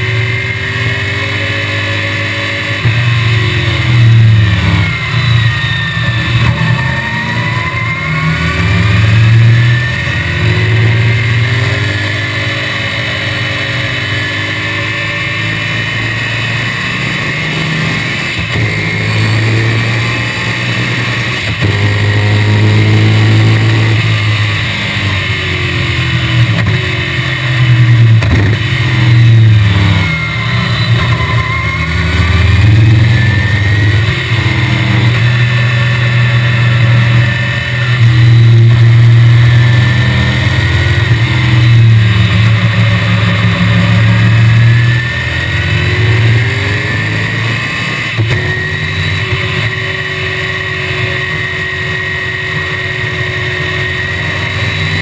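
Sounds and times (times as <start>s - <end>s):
car engine accelerating and braking: 0.0s - 55.0s.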